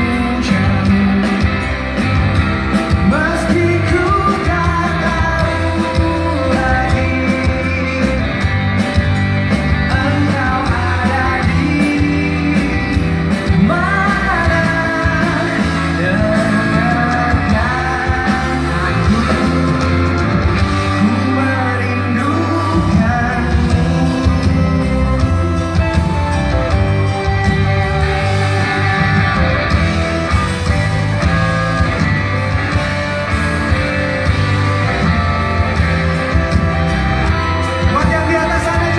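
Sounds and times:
person singing: 0.0s - 1.8s, 2.8s - 8.6s, 9.9s - 26.2s
live rock band playing: 0.0s - 38.9s.

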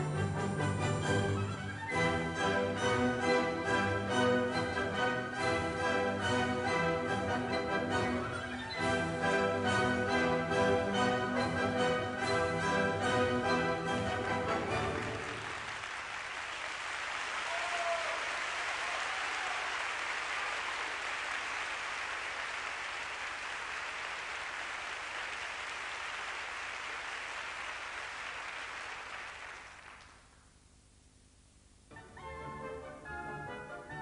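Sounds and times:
audience applauding: 13.9s - 30.4s.

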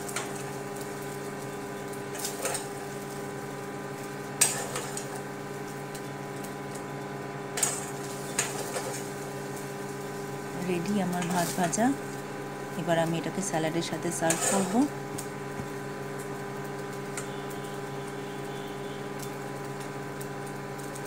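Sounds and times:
steady hum: 0.0s - 19.5s
metal spatula scraping frying pan: 14.1s - 14.9s.

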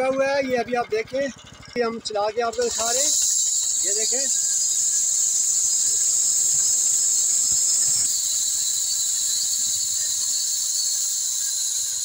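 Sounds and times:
insects buzzing: 2.6s - 12.0s.

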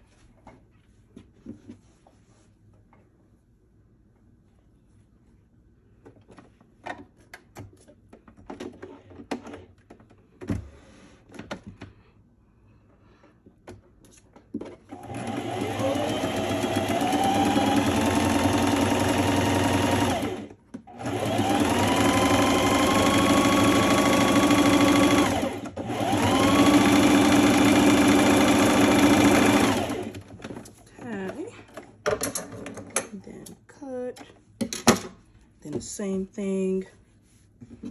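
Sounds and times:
sewing machine whirring: 14.9s - 30.3s.

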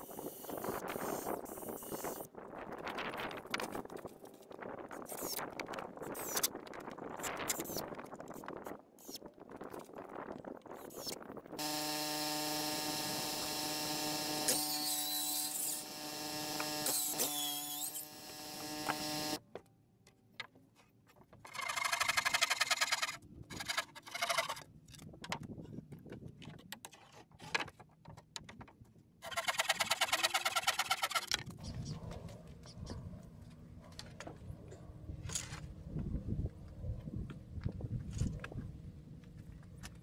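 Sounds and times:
handsaw cutting wooden board: 11.6s - 19.4s, 29.2s - 31.4s
machine hum: 11.6s - 19.4s.

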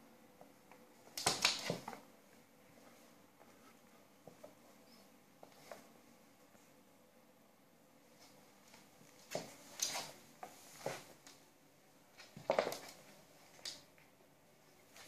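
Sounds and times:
cats scuffling on wooden floor: 8.1s - 11.4s.

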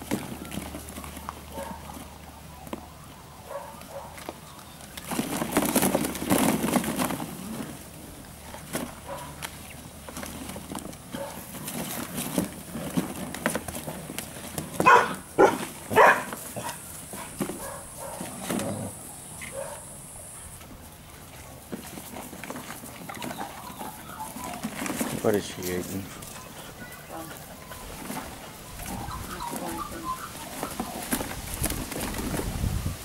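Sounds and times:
puppy barking: 1.5s - 1.9s, 3.5s - 4.2s, 9.1s - 9.4s, 11.1s - 11.4s, 14.8s - 16.8s, 17.6s - 18.3s, 19.5s - 19.9s
plastic balls clattering: 4.2s - 15.0s.

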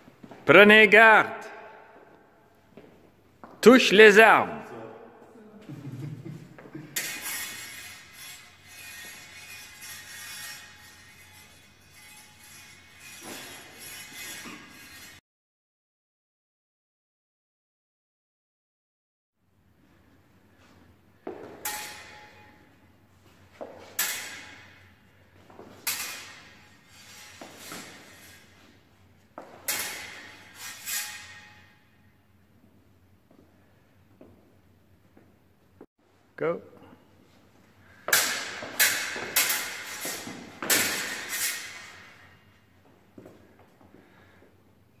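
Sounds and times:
practice swords clashing: 6.4s - 15.2s, 20.4s - 32.2s, 36.7s - 44.5s
steel blades clashing: 21.6s - 22.6s, 23.9s - 24.9s, 25.8s - 28.5s, 29.6s - 31.7s, 38.1s - 42.4s.

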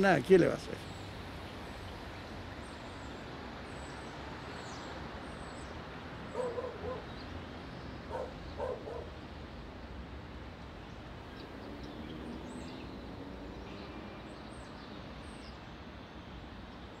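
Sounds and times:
outdoor ambience: 0.0s - 17.0s
dog barking: 6.3s - 7.1s, 8.1s - 9.2s.

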